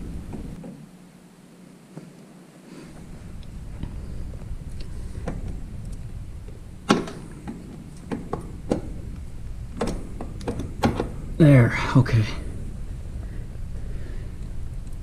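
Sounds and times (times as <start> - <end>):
low rumble of handling: 0.0 - 1.0, 1.8 - 11.5, 12.3 - 15.0.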